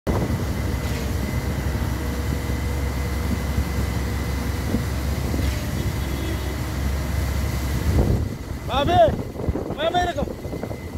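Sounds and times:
concrete pump engine rumble: 0.1s - 10.9s.

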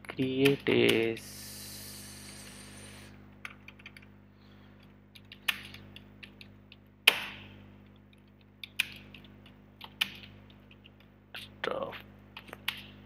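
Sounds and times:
computer keyboard typing: 3.4s - 4.1s, 5.1s - 7.2s, 7.8s - 11.1s, 12.4s - 12.9s.

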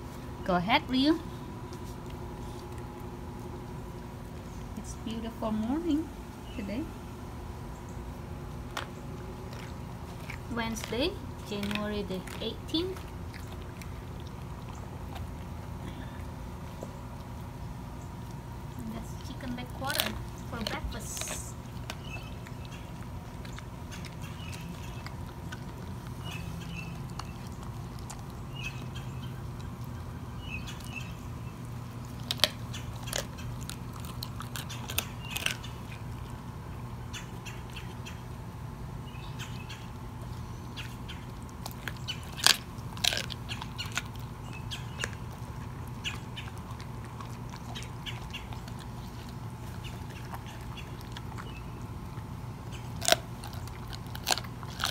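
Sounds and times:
dog gnawing wetly: 1.4s - 4.8s, 7.9s - 54.9s
bone cracking and crunching: 19.9s - 36.5s, 41.0s - 54.9s.

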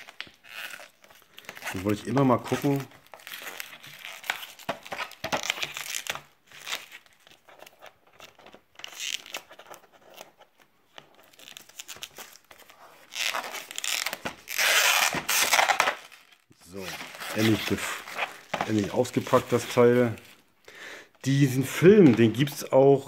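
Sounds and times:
plastic shrink-wrap tearing and crinkling: 0.0s - 9.7s, 11.2s - 20.5s.

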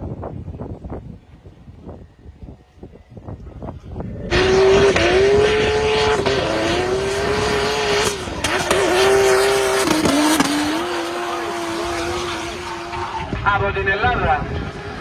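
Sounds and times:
engine at high revs: 4.0s - 13.4s.

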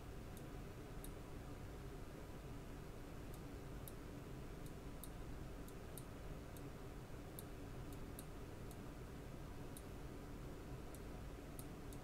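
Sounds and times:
low background hum: 0.0s - 12.0s
computer mouse clicking: 10.9s - 12.0s.

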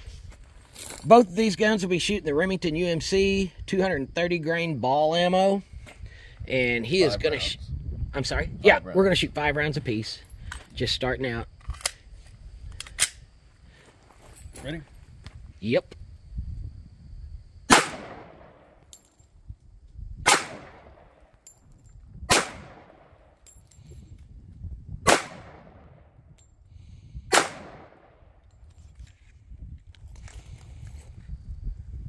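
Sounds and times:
pistol shots echoing: 17.7s - 18.8s, 20.3s - 21.2s, 22.3s - 23.3s, 25.1s - 25.8s, 27.3s - 28.2s.

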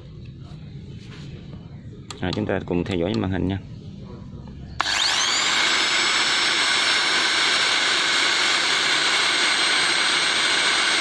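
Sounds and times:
drill motor whine: 4.8s - 11.0s.

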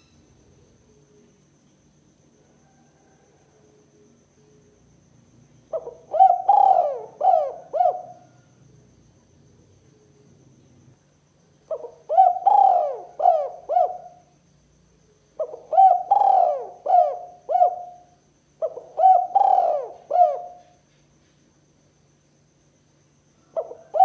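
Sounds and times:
dove cooing: 5.7s - 8.5s, 11.7s - 14.3s, 15.4s - 20.8s, 23.5s - 24.0s.

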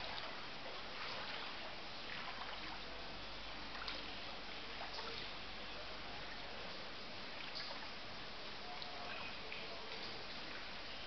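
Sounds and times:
floodwater trickling and flowing: 0.0s - 11.0s.

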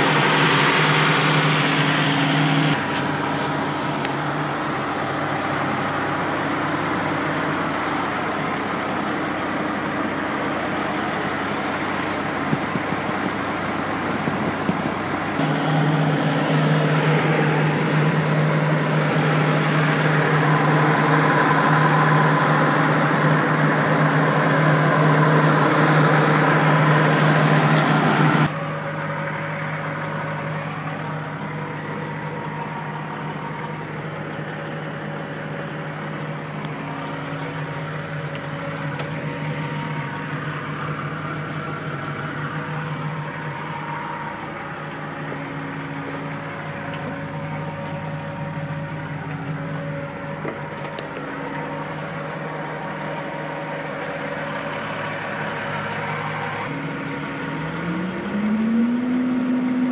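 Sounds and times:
excavator diesel engine humming: 0.0s - 59.9s.

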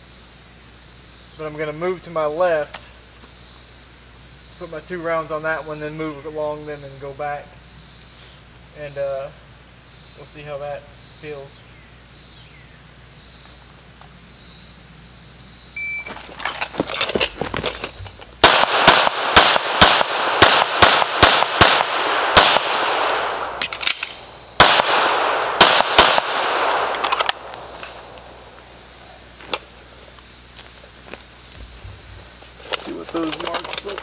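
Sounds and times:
shot timer beep: 15.8s - 16.1s
pistol shots: 18.4s - 28.4s.

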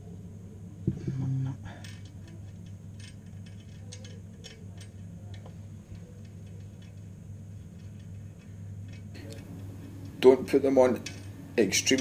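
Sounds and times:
low hum: 0.0s - 3.2s.

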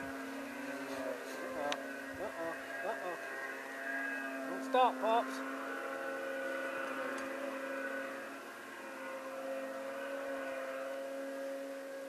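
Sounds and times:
distant snowmobile engine droning: 0.0s - 12.0s.

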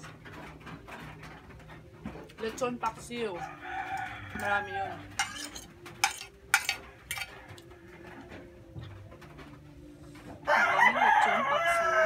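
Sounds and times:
rooster crowing: 3.4s - 5.0s, 10.5s - 12.0s
spoon scraping: 3.9s - 7.7s
plates and spoon clinking: 4.3s - 7.7s.

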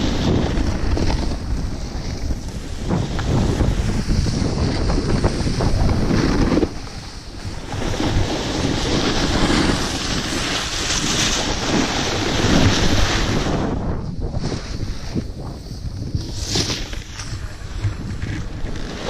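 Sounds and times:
ski edges scraping packed snow: 0.0s - 19.0s
wind buffeting microphone: 0.0s - 19.0s.

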